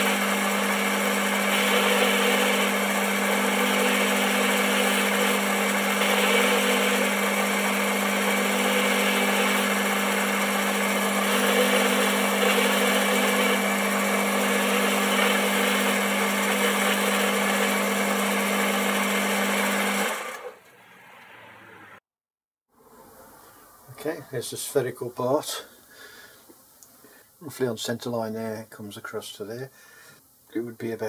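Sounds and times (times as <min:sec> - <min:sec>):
metal lathe humming: 0:00.0 - 0:20.6.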